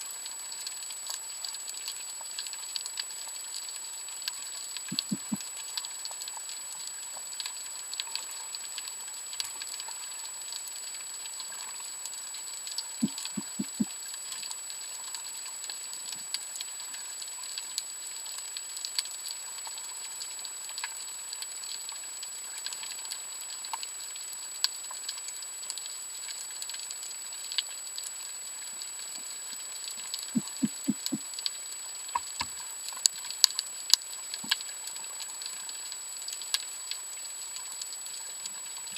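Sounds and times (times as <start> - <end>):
faint crackling clicks: 0.0 - 38.9
steady underwater hiss: 0.0 - 38.9
thin steady high tone: 4.9 - 5.4, 13.0 - 13.9, 30.4 - 31.2.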